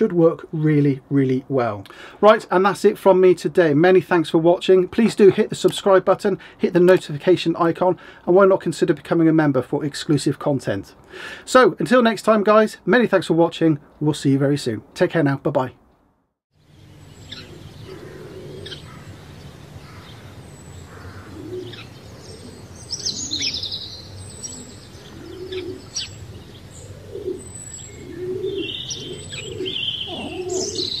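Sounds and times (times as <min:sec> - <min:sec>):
high bird chirps: 0:16.7 - 0:31.0
birds cooing: 0:17.2 - 0:31.0.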